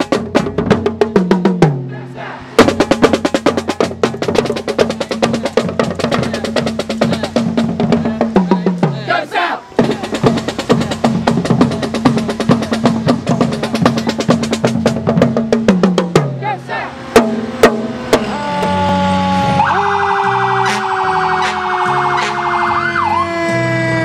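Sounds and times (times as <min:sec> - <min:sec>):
marching drumline: 0:00.0 - 0:19.6
low held brass notes: 0:16.8 - 0:24.0.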